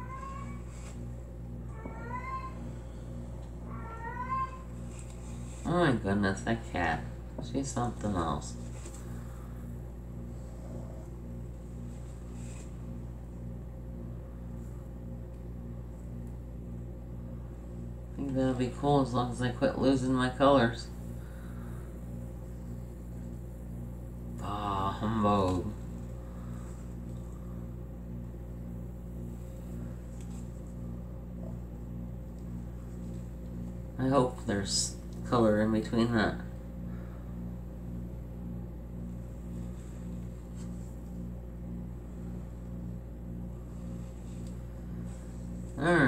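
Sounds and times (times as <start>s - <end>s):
low mechanical hum: 0.0s - 46.0s
soft rustle: 0.2s - 1.4s, 4.6s - 5.9s, 7.9s - 9.6s, 10.3s - 13.0s, 39.2s - 41.3s, 43.6s - 45.8s.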